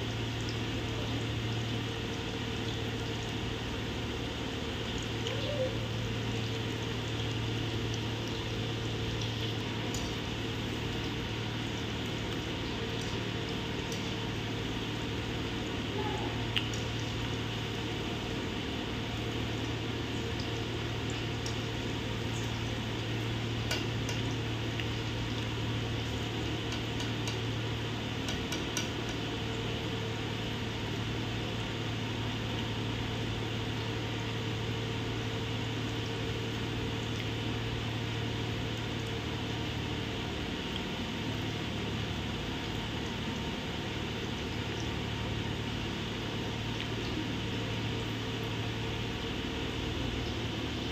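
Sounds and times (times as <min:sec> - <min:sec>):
deep-frying sizzle with pops: 0:00.0 - 0:50.9.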